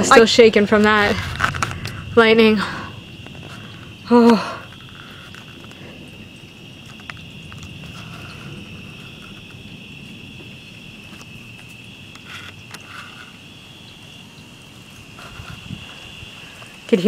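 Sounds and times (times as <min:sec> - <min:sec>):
low rumbling background: 0:00.0 - 0:12.1
crickets chirping: 0:00.0 - 0:17.0.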